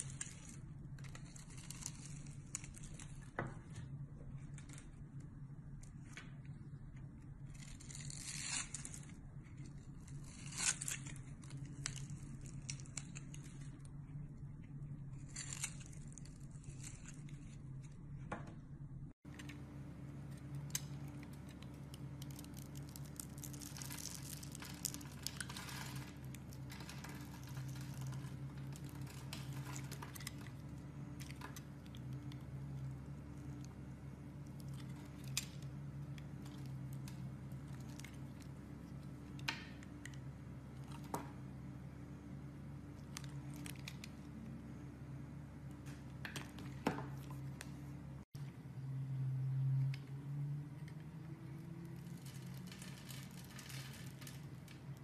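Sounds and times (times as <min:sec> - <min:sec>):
knife scraping and cutting soap: 0:00.0 - 0:03.9, 0:05.8 - 0:18.5
steady low hum: 0:00.0 - 0:55.0.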